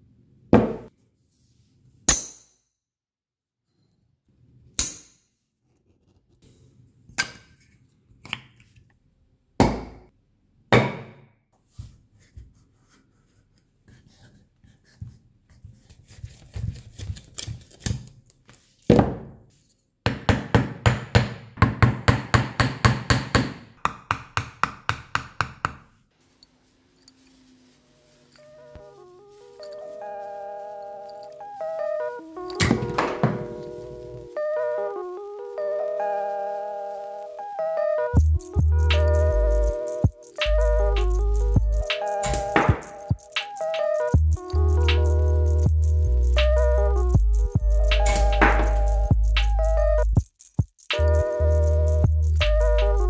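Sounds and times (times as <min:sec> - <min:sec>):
magnets scraping and sliding: 0:50.2 - 0:51.0.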